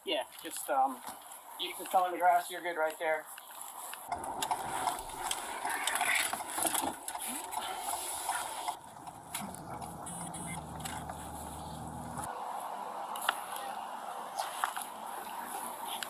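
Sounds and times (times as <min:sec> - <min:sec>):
low engine hum: 0:08.8 - 0:12.3.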